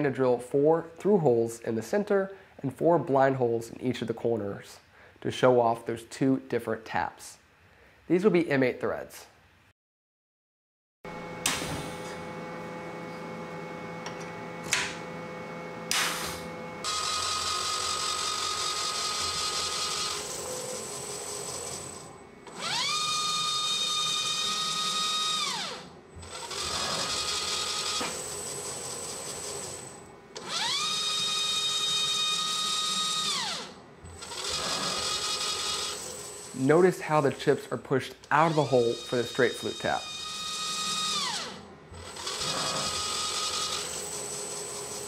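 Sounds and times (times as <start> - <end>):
mill spindle motor whine: 11.1 - 45.0.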